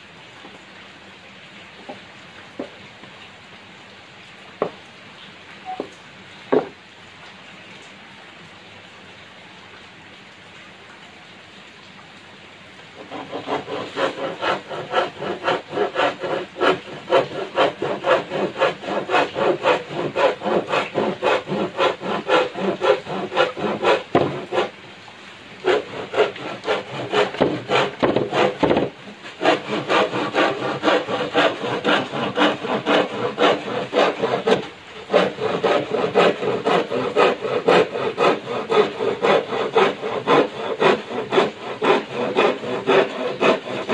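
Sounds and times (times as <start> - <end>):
faint steady hiss: 0.0 - 43.9
hand saw cutting wood: 13.0 - 24.7, 25.6 - 43.9.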